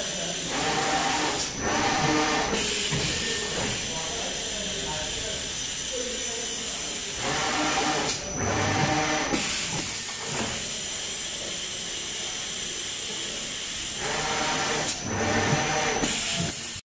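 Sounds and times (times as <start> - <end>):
paper feeder air hissing: 0.0 - 8.3.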